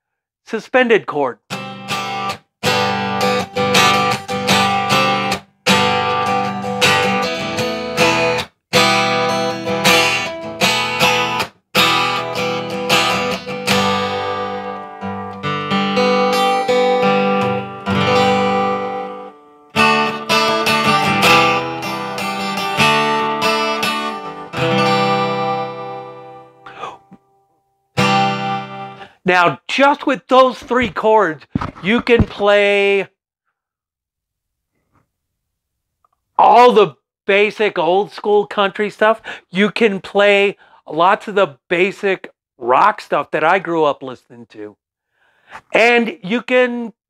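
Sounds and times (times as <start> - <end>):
acoustic guitar strumming chords: 1.5 - 27.3, 28.0 - 29.1.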